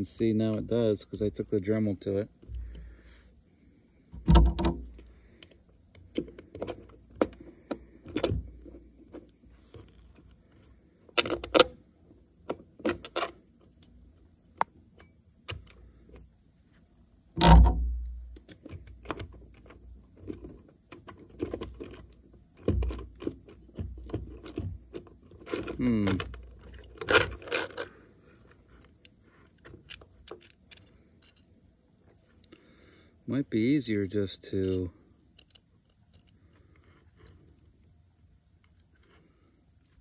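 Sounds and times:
high insect drone: 0.0s - 40.0s
metal connector clicks and knocks: 4.2s - 8.5s, 17.4s - 19.7s.

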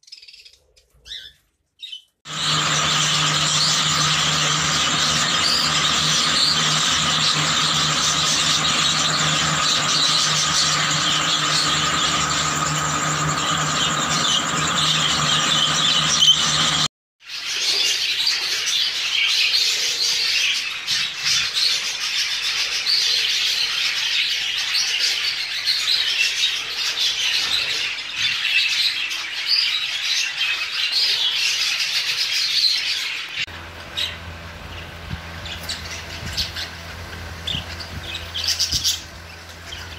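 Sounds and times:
budgerigars chattering and warbling: 33.9s - 39.9s.

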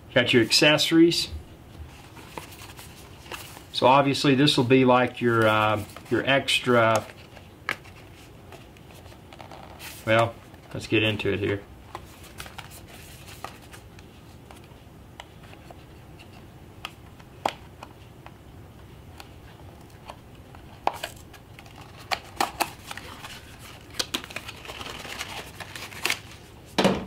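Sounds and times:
cardboard and packaging rustling: 1.8s - 14.8s, 19.4s - 26.8s.

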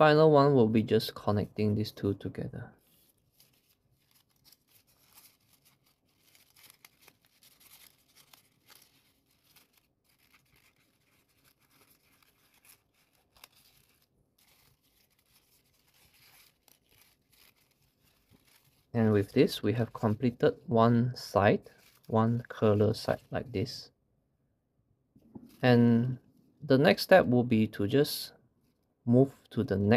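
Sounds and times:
paper rustling and crinkling: 2.8s - 20.6s, 21.2s - 23.8s.

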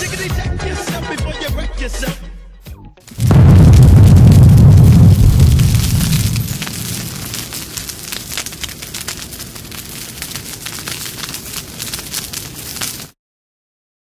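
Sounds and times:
fire crackling: 3.0s - 13.2s
explosion rumble: 3.1s - 13.0s.

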